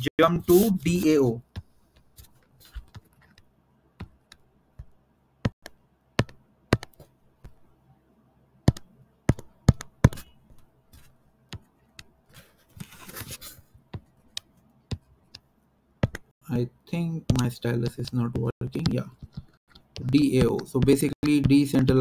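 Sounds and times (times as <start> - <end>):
stylus and controls clicking: 17.2 - 22.0.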